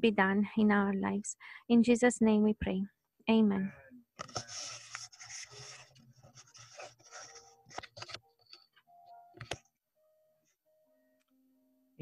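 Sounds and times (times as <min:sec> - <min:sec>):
paper rustling: 0:04.2 - 0:08.8.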